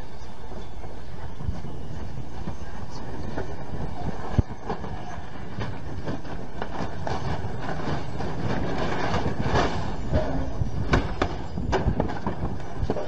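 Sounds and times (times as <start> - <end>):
high whine falling in pitch: 0.0 - 13.0.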